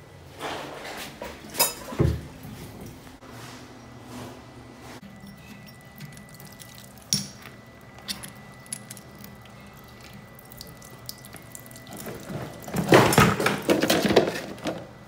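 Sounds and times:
water dripping and trickling: 0:05.2 - 0:12.9
water running and splashing: 0:05.9 - 0:07.2, 0:08.4 - 0:13.4.

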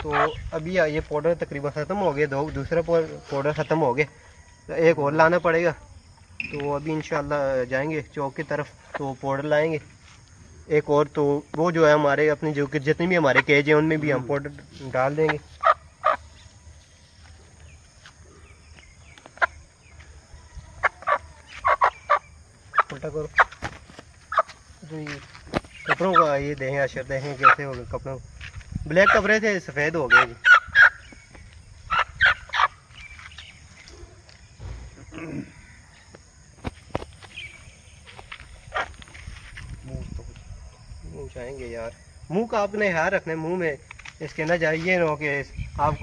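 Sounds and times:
hen clucking: 0:00.0 - 0:00.5, 0:15.2 - 0:16.4, 0:19.3 - 0:23.7, 0:24.3 - 0:24.6, 0:25.8 - 0:26.4, 0:30.0 - 0:31.0, 0:31.9 - 0:32.8
small birds chirping: 0:00.0 - 0:46.0
chicken call falling in pitch: 0:20.4 - 0:22.2.

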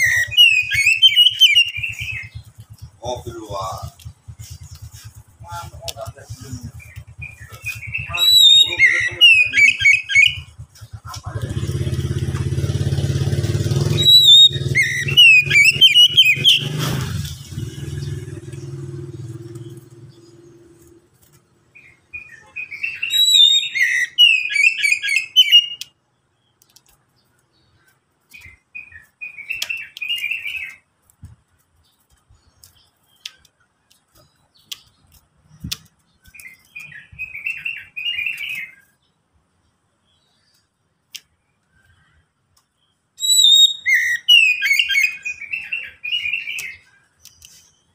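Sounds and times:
bird singing whistled phrases: 0:00.0 - 0:11.4, 0:13.8 - 0:20.2, 0:21.8 - 0:25.9, 0:28.4 - 0:30.8, 0:36.3 - 0:38.9, 0:43.2 - 0:47.0
low engine hum: 0:01.7 - 0:09.2, 0:10.3 - 0:21.8.

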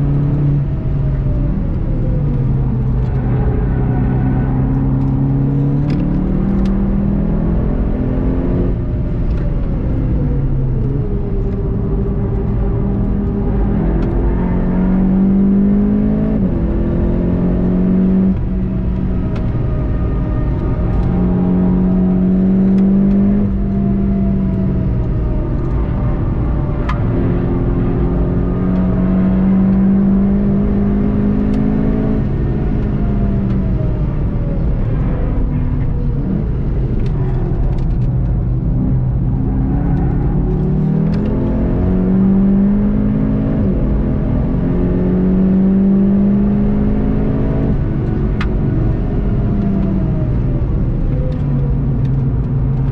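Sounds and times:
car engine accelerating: 0:00.0 - 0:52.9.

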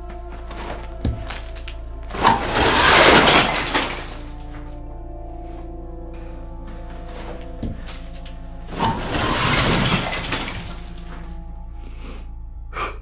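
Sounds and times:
background music: 0:00.0 - 0:13.0
rubble crashing down: 0:00.2 - 0:04.8, 0:07.0 - 0:11.5.

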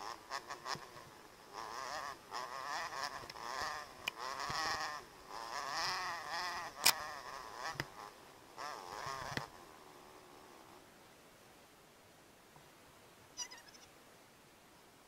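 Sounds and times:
dirt bike engine revving: 0:00.0 - 0:09.5.

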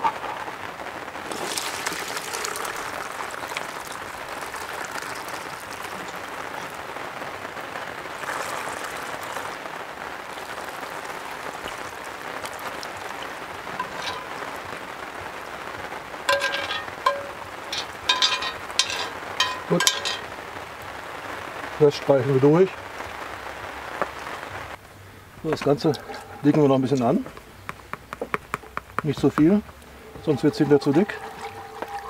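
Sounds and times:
sauce trickling through sieve: 0:01.2 - 0:07.0, 0:08.1 - 0:09.6, 0:10.2 - 0:15.1, 0:16.3 - 0:20.3, 0:30.0 - 0:32.0
metallic pot clinks: 0:13.8 - 0:14.5, 0:16.3 - 0:20.3.

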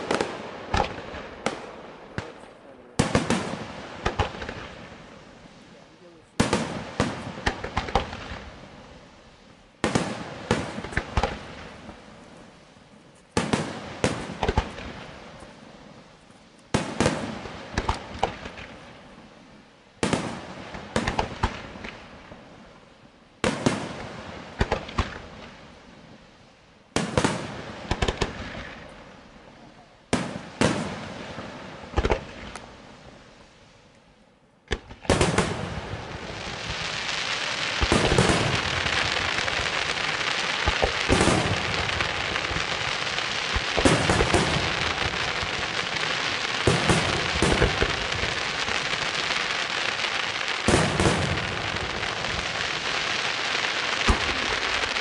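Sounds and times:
firework crackle: 0:00.0 - 0:55.0
firework shells bursting: 0:34.7 - 0:55.0.

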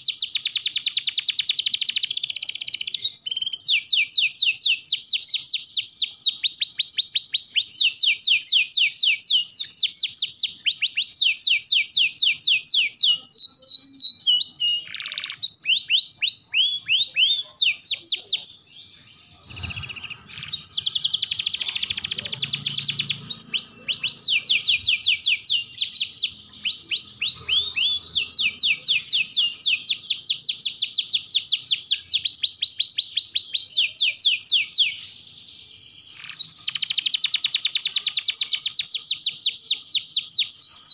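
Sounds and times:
canary singing trills: 0:00.0 - 0:40.9.

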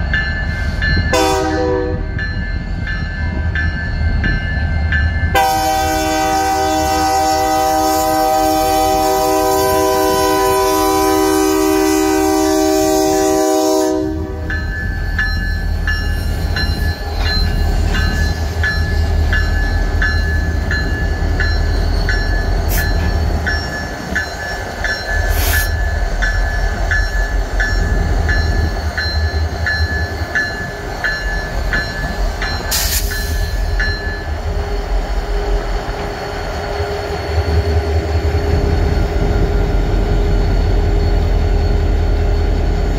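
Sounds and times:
train clanks: 0:00.0 - 0:42.9
locomotive horn chord: 0:01.1 - 0:02.1, 0:05.3 - 0:14.5
warning bell ringing: 0:14.4 - 0:34.5.

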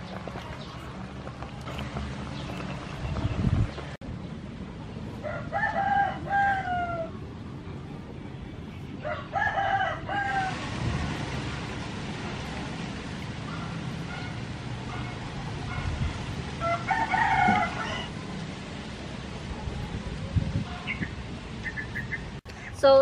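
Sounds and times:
rooster crowing: 0:05.2 - 0:07.2, 0:09.0 - 0:10.6, 0:16.6 - 0:18.2.

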